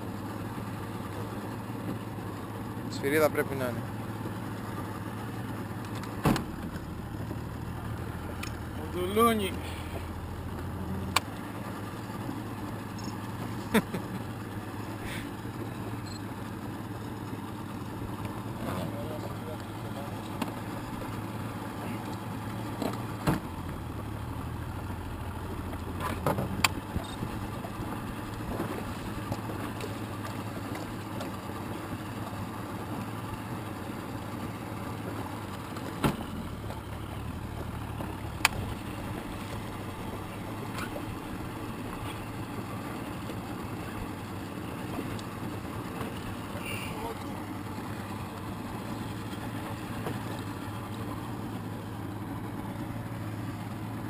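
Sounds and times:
outboard motor idling: 0.0s - 54.0s.

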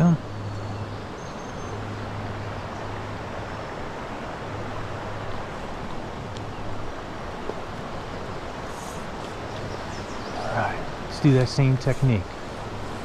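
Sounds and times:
creek water flowing: 0.0s - 13.0s.

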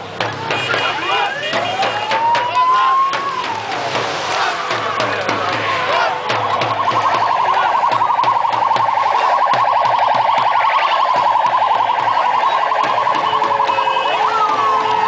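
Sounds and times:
electronic sirens warbling: 1.2s - 3.9s, 4.5s - 15.0s.

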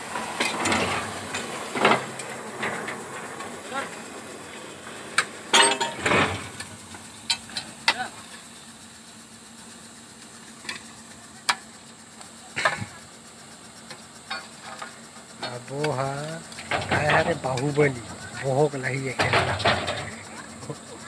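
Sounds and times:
drilling rig knocks and clanks: 0.1s - 8.4s, 13.9s - 21.0s.

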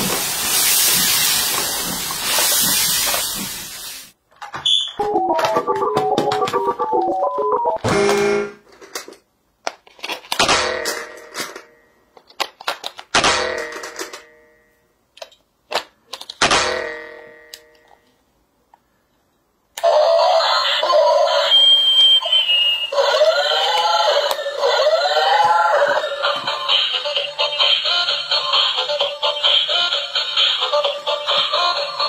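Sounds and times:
synthetic sing-song voice sweeps: 5.0s - 7.8s
toy car electronic tune: 5.0s - 8.4s
plastic clicks from handling toy: 12.2s - 13.1s, 15.2s - 16.4s.

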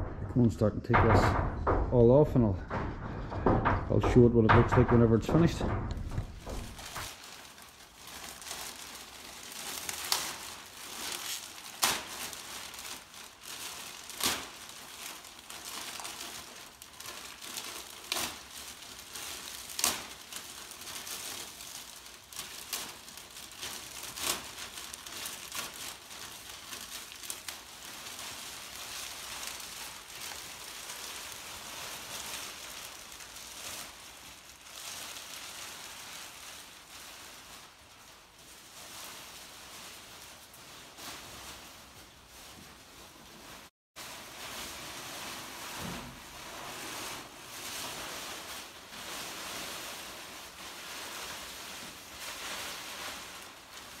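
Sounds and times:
plastic sheet crinkling: 0.0s - 54.0s
plastic sheet snapping: 2.6s - 35.4s.

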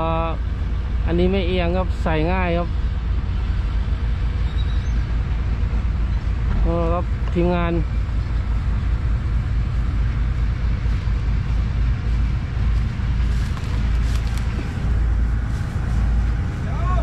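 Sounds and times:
diesel truck engine idling: 0.0s - 17.0s.

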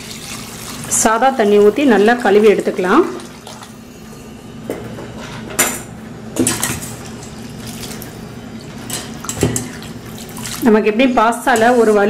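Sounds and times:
water sloshing: 6.4s - 10.7s.

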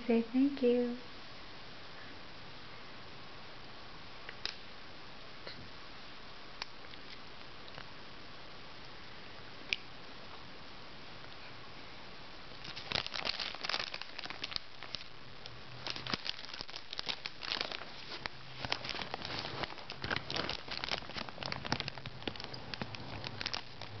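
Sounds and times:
cellophane wrap crinkling: 12.5s - 24.0s.

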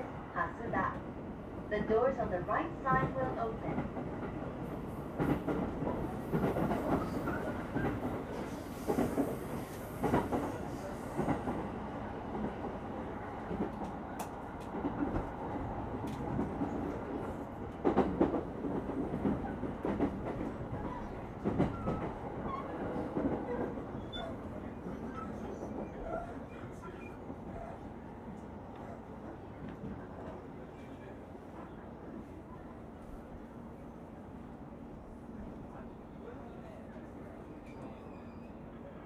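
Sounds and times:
train interior rumble: 0.0s - 39.0s.

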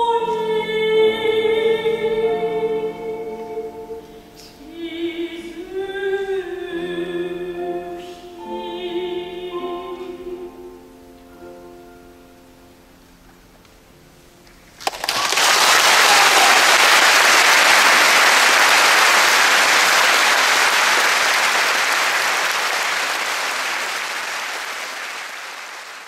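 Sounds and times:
piano notes: 0.0s - 14.8s
audience applauding: 14.8s - 26.0s.

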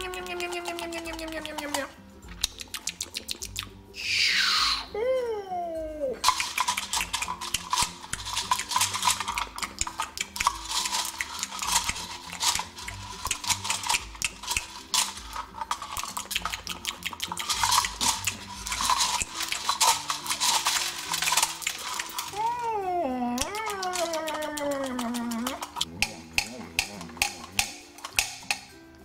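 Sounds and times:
toy beak pecking cereal in bowl: 0.0s - 3.8s, 6.2s - 22.4s.

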